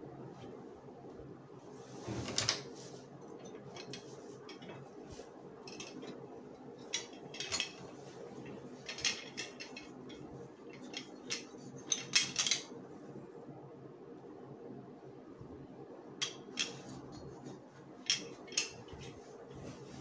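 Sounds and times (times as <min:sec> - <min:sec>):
low steady hum: 0:00.0 - 0:20.0
armour plates clacking: 0:03.4 - 0:04.8, 0:05.7 - 0:06.2, 0:06.8 - 0:12.7, 0:16.2 - 0:16.9, 0:18.0 - 0:19.1.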